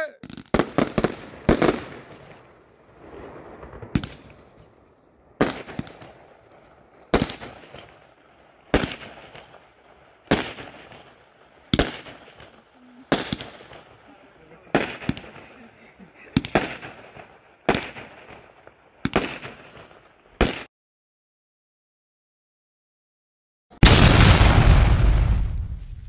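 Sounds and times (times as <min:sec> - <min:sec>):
firework trailing crackle: 0:00.2 - 0:20.7, 0:23.8 - 0:26.0
aerial fireworks bangs: 0:23.8 - 0:26.0.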